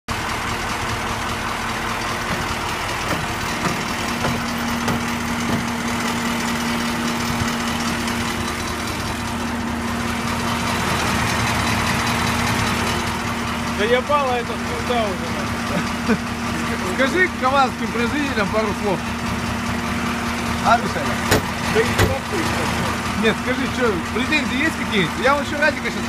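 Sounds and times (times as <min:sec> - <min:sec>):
diesel truck engine idling: 0:00.1 - 0:26.0
faint knocks: 0:02.3 - 0:05.8.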